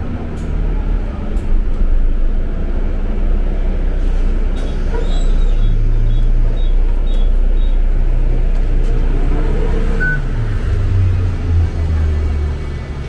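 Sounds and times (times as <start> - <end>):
bus engine idling: 0.0 - 13.0
short beep: 10.0 - 10.2.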